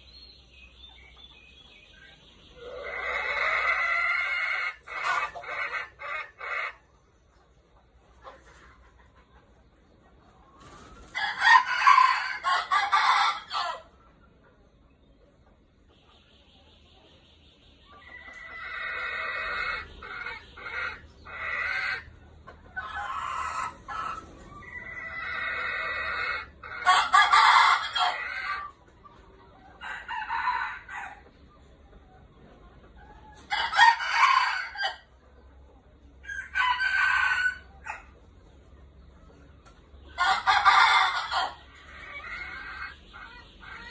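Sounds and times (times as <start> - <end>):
roosters crowing: 2.6 - 6.8, 11.0 - 13.9, 18.2 - 22.1, 22.7 - 28.7, 29.8 - 31.4, 33.4 - 35.1, 36.2 - 38.2, 40.1 - 43.0.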